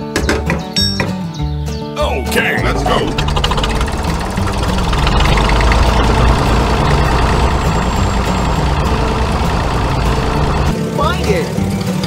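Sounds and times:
tractor engine running: 2.6s - 12.0s.

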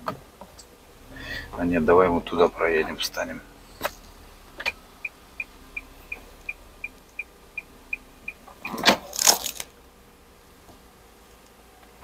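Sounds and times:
rustling: 3.4s - 12.0s
car electronic ticking chime: 4.5s - 8.8s.

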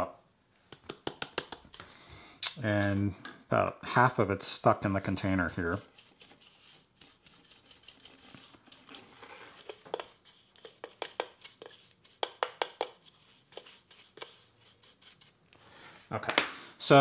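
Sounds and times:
soft rustling scrapes: 4.7s - 10.8s.

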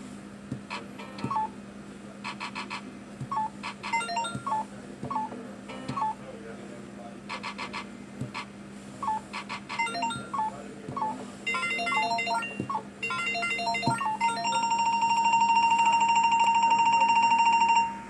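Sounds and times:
electronic beeped tune: 3.3s - 5.3s, 9.0s - 14.7s
fast high beeps: 3.3s - 5.3s, 9.0s - 14.8s.

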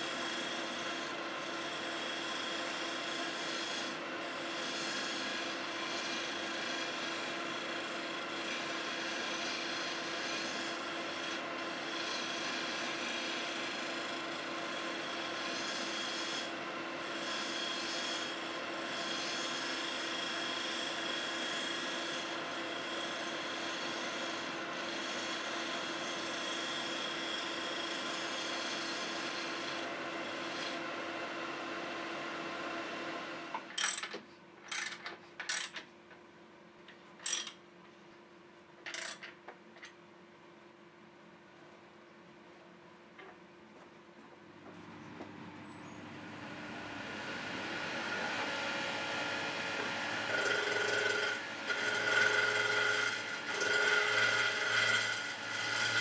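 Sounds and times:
turning tool rasping on wood: 0.1s - 30.8s, 49.5s - 56.0s
lathe humming: 0.1s - 33.6s, 45.9s - 56.0s.

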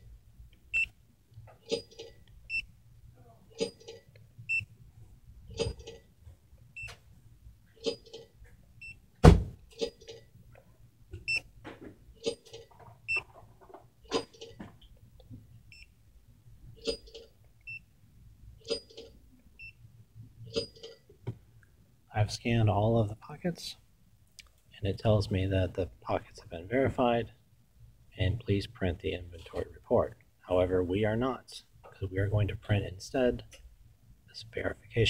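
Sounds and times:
loud thump: 9.2s - 9.6s.

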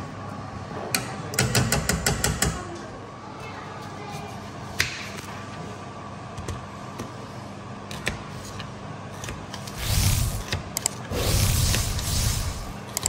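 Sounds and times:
steady low hum: 5.4s - 13.0s.

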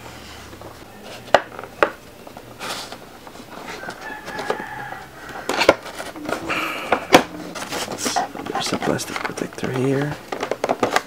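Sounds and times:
cardboard rustling and scraping: 0.0s - 11.0s
drawn-out whining tone: 4.4s - 9.7s.

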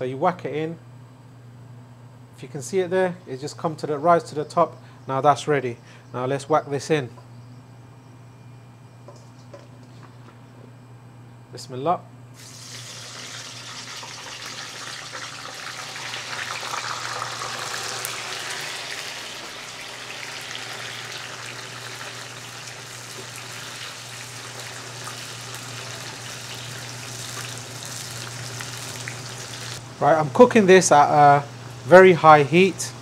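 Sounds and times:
okra sizzling in hot oil: 12.4s - 29.8s.

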